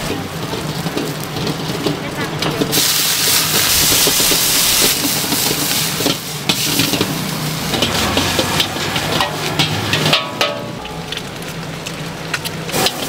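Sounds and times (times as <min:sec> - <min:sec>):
metal utensils clanking on wok: 0:00.0 - 0:13.0
steady sizzling: 0:00.0 - 0:13.0
loud hiss: 0:02.6 - 0:09.5.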